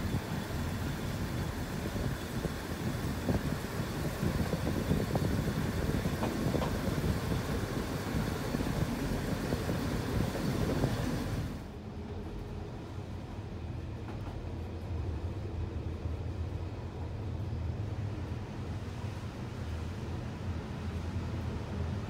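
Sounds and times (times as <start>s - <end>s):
wind noise: 0.0s - 11.6s
dull rumble inside train carriage: 0.0s - 22.0s
railcar wheels and engine clatter: 0.0s - 22.0s.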